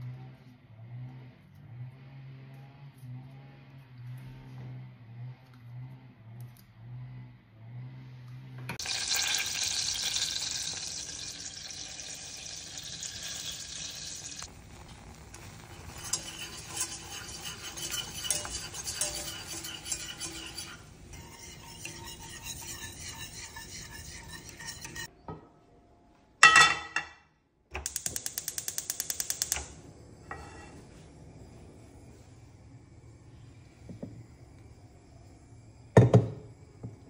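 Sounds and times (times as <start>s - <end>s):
wire whisk beating in saucepan: 8.8s - 25.1s.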